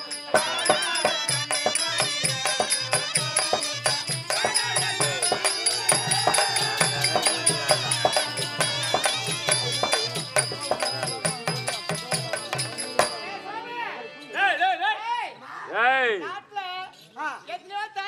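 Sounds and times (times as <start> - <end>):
wavering melody: 0.0 - 14.4.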